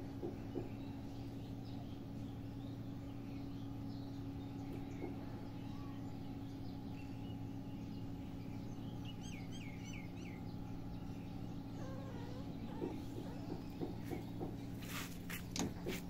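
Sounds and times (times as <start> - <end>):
outdoor background noise: 0.0 - 16.0
steady low hum: 0.0 - 16.0
bird chirping: 0.2 - 16.0.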